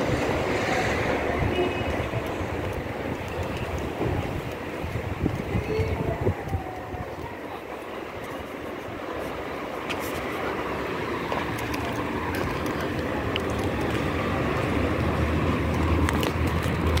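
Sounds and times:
steady outdoor rumble: 0.0s - 17.0s.

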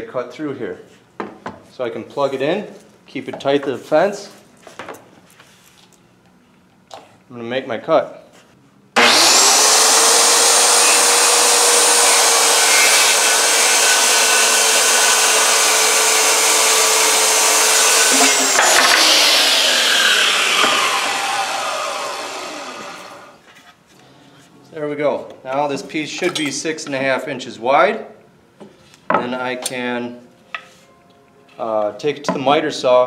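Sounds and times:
circular saw cutting: 9.0s - 23.4s
saw blade spinning down: 9.0s - 23.4s.

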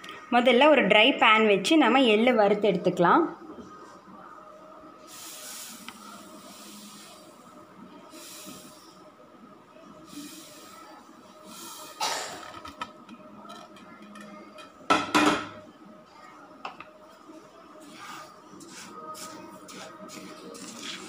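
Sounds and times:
kitchenware clattering: 14.0s - 15.6s.

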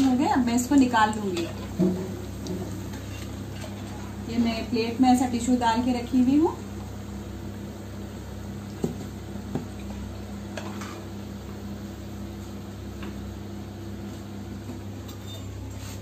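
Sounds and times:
kitchen appliance hum: 0.0s - 16.0s.

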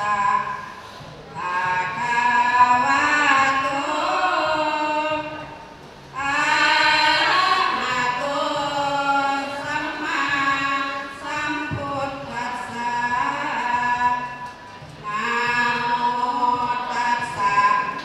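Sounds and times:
women singing unaccompanied chant: 0.0s - 0.7s, 1.3s - 5.5s, 6.1s - 14.4s, 15.0s - 18.0s.

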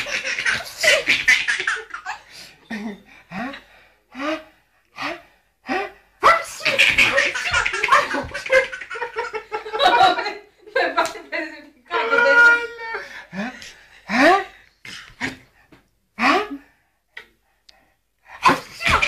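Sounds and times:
baby laughing: 0.0s - 2.2s, 6.5s - 9.5s, 18.5s - 19.0s.

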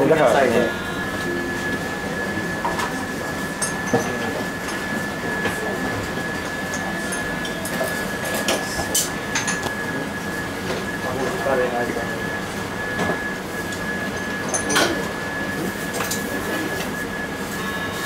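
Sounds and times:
room noise: 0.0s - 6.7s
thin high whine: 0.0s - 18.0s.

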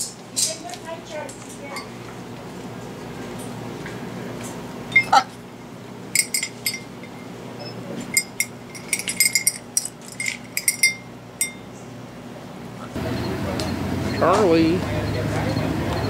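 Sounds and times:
small metal bell clinking: 1.7s - 1.9s, 6.2s - 11.7s.

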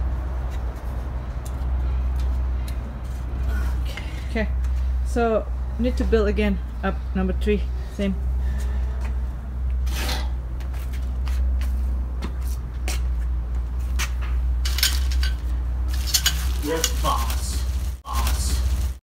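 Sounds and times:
steady low rumble: 0.0s - 19.0s
metal tubes clicking: 14.6s - 17.2s
plastic packaging crinkling: 15.9s - 19.0s.

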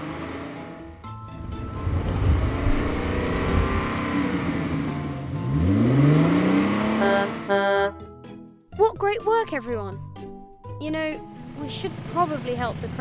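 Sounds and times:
vehicle engine revving: 0.0s - 8.0s.

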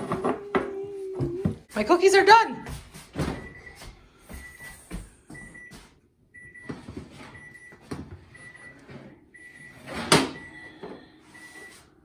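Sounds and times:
oven timer beeping: 5.4s - 11.9s.

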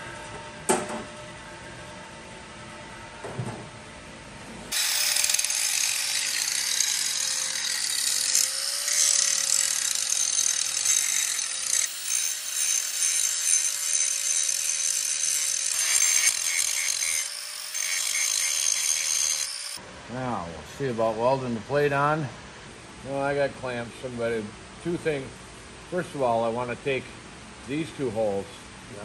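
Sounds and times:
grinder grinding steel: 4.7s - 19.8s
grinder motor whining: 4.7s - 19.8s.

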